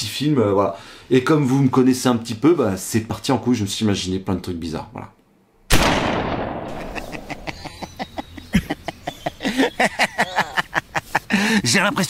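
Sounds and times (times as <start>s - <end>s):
loud bang: 5.7s - 7.4s.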